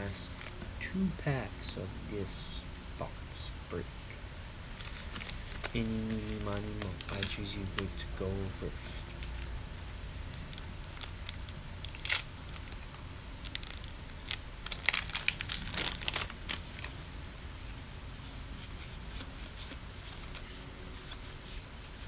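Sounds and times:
wrapper being torn and crinkled: 4.8s - 8.0s, 9.0s - 9.5s, 10.2s - 17.1s.

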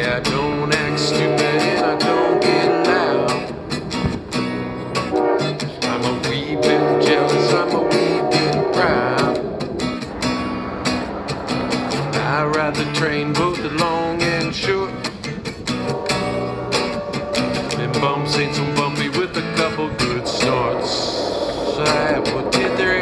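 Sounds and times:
acoustic guitar strummed in chugging rhythm: 0.0s - 23.0s
wavering melody line: 15.7s - 23.0s.

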